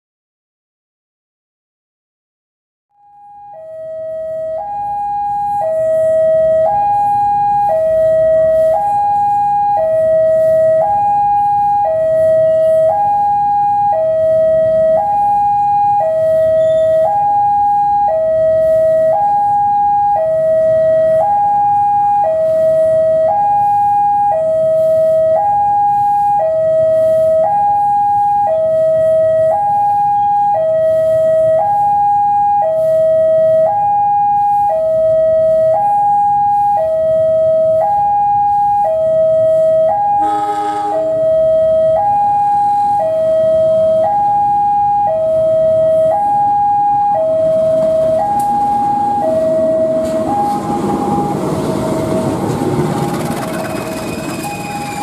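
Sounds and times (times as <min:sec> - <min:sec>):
two-tone crossing alarm: 0:02.9 - 0:55.0
locomotive rumble: 0:47.4 - 0:55.0.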